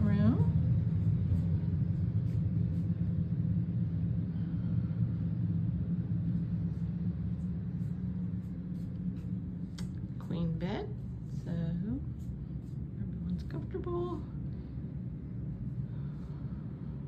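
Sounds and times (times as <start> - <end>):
low room rumble: 0.0 - 17.0.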